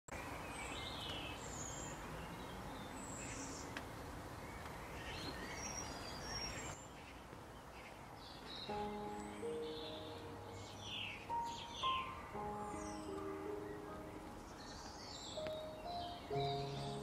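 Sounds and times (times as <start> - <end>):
steady outdoor hiss: 0.1 - 17.0
birds chirping and whistling: 4.5 - 7.2, 8.3 - 17.0.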